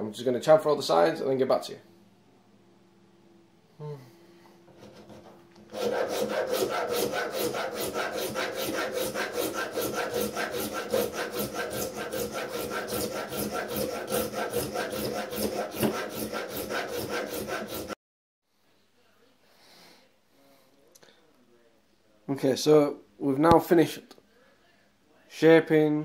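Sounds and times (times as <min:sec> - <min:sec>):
hand file rasping on wood: 0:04.7 - 0:18.0.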